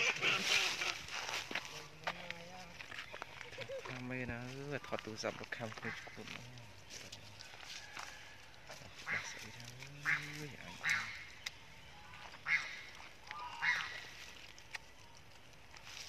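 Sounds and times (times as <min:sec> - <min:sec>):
macaques screaming: 0:00.0 - 0:01.2, 0:10.0 - 0:11.3, 0:12.4 - 0:14.1.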